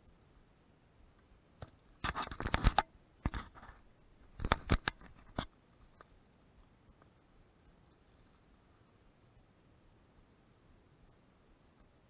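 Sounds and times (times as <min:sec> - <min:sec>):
hand handling camera: 0:01.6 - 0:03.8, 0:04.4 - 0:06.1.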